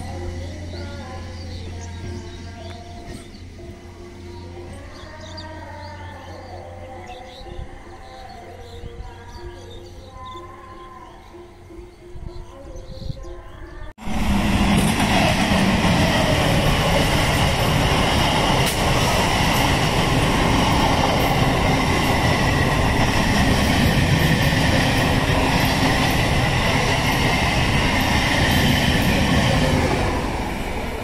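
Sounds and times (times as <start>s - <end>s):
train passing at speed: 0.0s - 6.1s, 13.4s - 31.0s.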